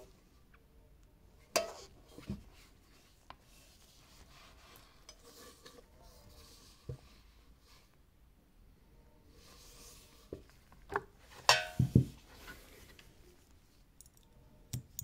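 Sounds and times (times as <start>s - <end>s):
faint rubbing: 1.8s - 8.0s, 9.3s - 11.3s.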